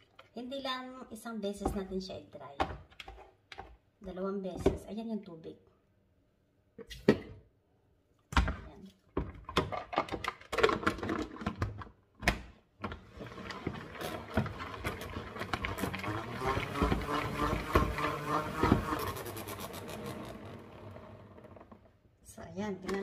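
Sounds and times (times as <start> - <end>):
salad spinner whirring rattle: 13.2 - 21.8.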